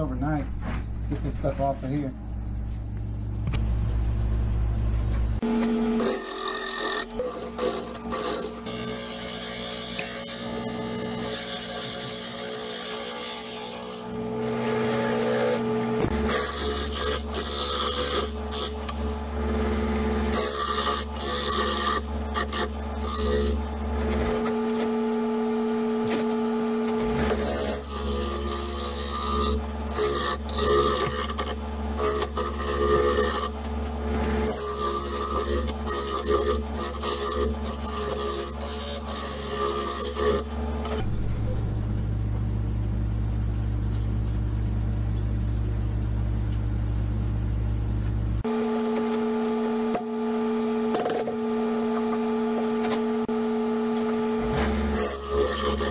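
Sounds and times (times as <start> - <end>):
gouge scraping wood on lathe: 5.4 - 24.8, 27.1 - 41.0, 54.5 - 55.9
lathe motor hum: 5.4 - 41.3.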